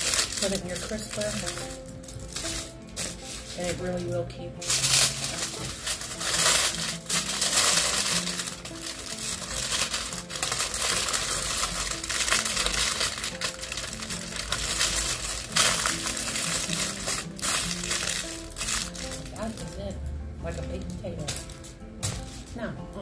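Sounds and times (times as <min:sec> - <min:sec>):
aluminium foil crinkling: 0:00.0 - 0:22.6.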